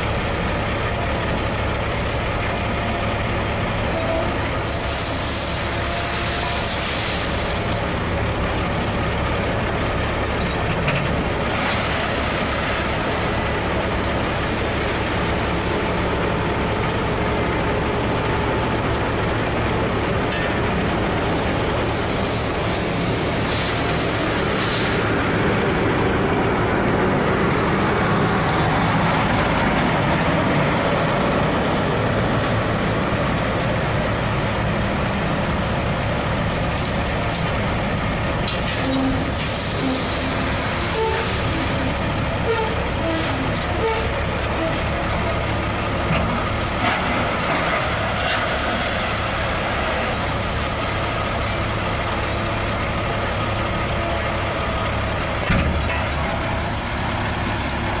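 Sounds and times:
heavy diesel engines running: 0:00.0 - 0:58.0
loud hiss: 0:04.5 - 0:07.5, 0:21.8 - 0:25.1, 0:38.6 - 0:41.8, 0:56.5 - 0:58.0.

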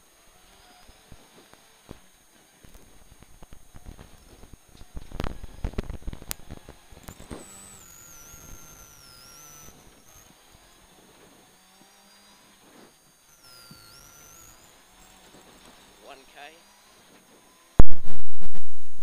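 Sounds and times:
wavering interference whistle tones: 0:00.1 - 0:01.2, 0:02.8 - 0:19.0
intercom line crackling clicks: 0:02.7 - 0:10.0.

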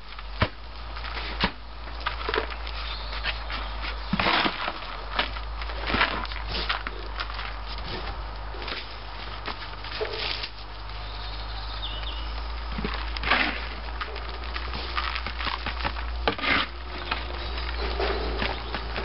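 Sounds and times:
potting compost scraped and dropped: 0:00.0 - 0:11.2, 0:11.9 - 0:19.0
plastic pots knocking: 0:15.0 - 0:19.0.

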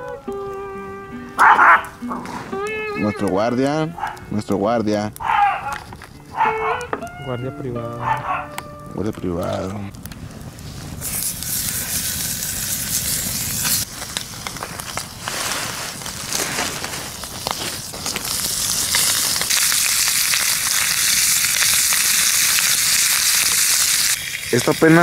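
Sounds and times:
campfire crackling and popping: 0:00.0 - 0:25.0
bacon sizzling in a frying pan: 0:11.0 - 0:25.0.

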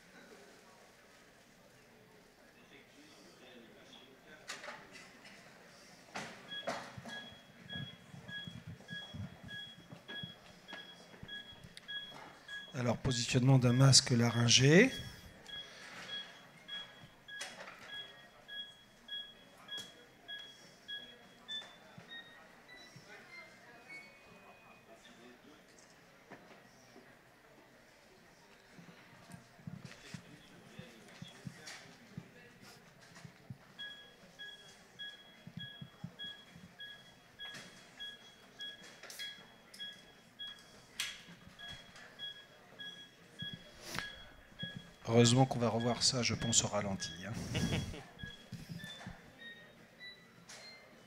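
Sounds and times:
two-tone metronome beeps: 0:06.5 - 0:12.8, 0:41.6 - 0:50.8
cpr metronome short beeps: 0:06.5 - 0:25.2, 0:33.8 - 0:51.0.

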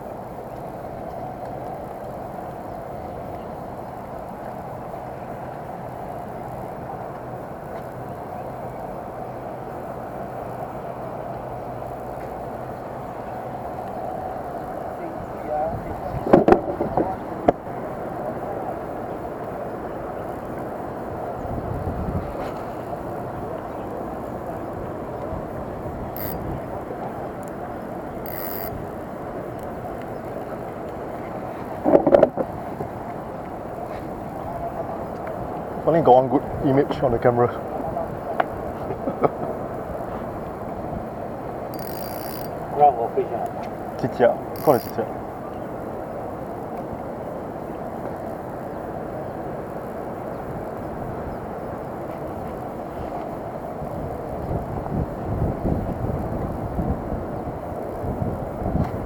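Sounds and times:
outdoor background noise: 0:00.0 - 0:59.0
fishing reel whirring: 0:26.0 - 0:29.9, 0:41.7 - 0:42.8, 0:44.1 - 0:45.1.

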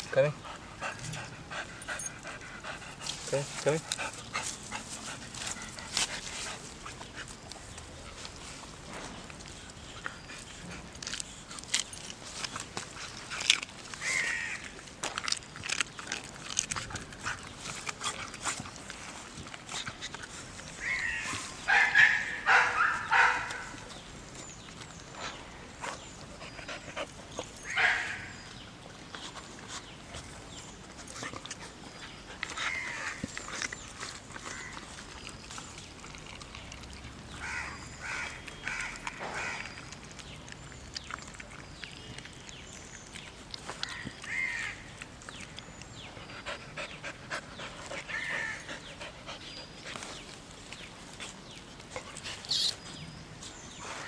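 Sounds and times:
dog chewing meat: 0:00.5 - 0:54.0
crow cawing: 0:43.9 - 0:44.8.

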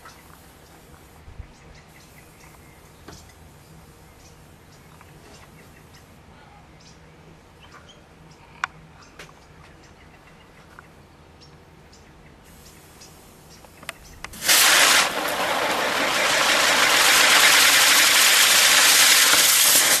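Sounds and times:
loud fizzing hiss: 0:14.3 - 0:20.0
rabbit digging in soil: 0:14.3 - 0:20.0.

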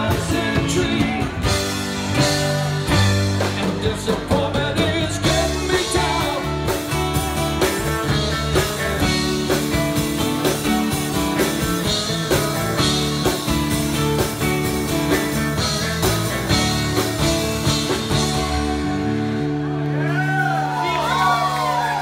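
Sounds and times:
drums keeping a steady beat: 0:00.0 - 0:19.5
bass: 0:00.0 - 0:22.0
electric guitars: 0:00.0 - 0:22.0
keyboard: 0:00.0 - 0:22.0.

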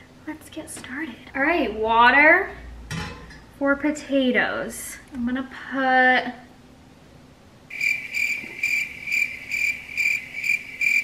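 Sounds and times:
crickets chirping: 0:07.7 - 0:11.0.

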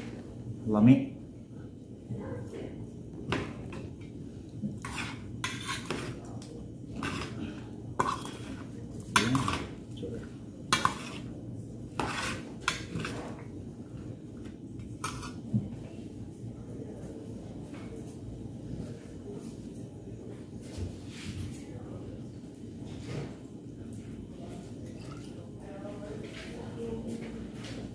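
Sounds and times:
metal spoons scraping a pot: 0:04.8 - 0:06.2, 0:07.0 - 0:09.8, 0:10.7 - 0:11.3, 0:12.0 - 0:13.3, 0:15.0 - 0:15.4.

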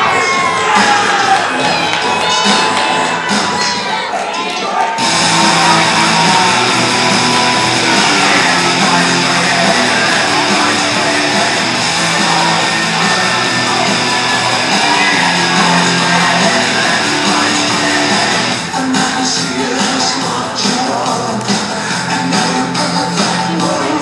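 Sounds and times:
loud rock music with electric guitar: 0:04.9 - 0:24.0.

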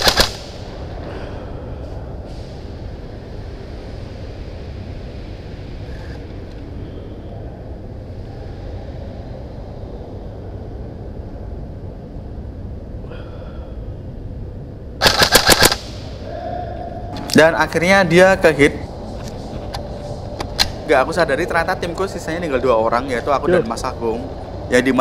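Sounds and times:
airsoft gun burst: 0:00.0 - 0:00.5, 0:15.0 - 0:15.9
low rumble: 0:00.3 - 0:15.0, 0:15.8 - 0:25.0.

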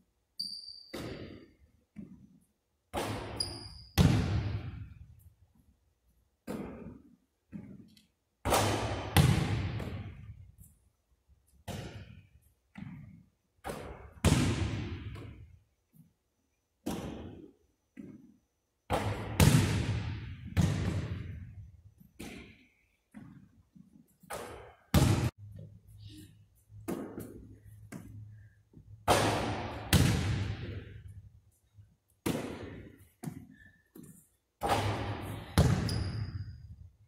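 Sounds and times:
basketball striking rim and backboard: 0:00.9 - 0:02.1, 0:02.9 - 0:04.9, 0:08.4 - 0:10.3, 0:11.6 - 0:15.4, 0:18.9 - 0:21.5, 0:24.3 - 0:25.3, 0:29.0 - 0:31.0, 0:34.6 - 0:36.6
basketball bouncing on wooden floor: 0:03.0 - 0:04.8, 0:06.4 - 0:10.3, 0:11.6 - 0:15.4, 0:32.2 - 0:36.7.

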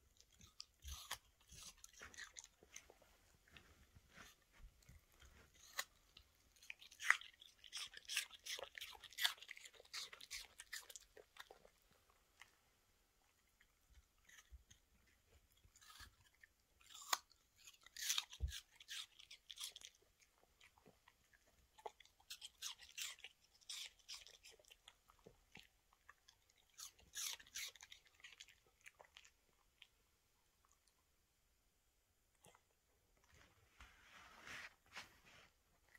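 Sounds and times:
dog crunching apple: 0:00.1 - 0:12.6, 0:13.2 - 0:30.0.

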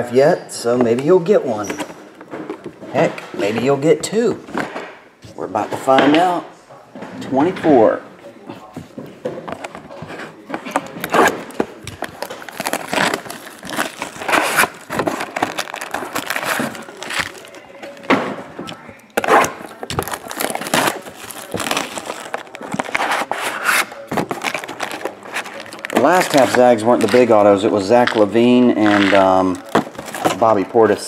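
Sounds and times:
plastic wrapping crinkling: 0:09.5 - 0:31.0
packaging tearing: 0:11.0 - 0:18.1, 0:19.2 - 0:30.4.

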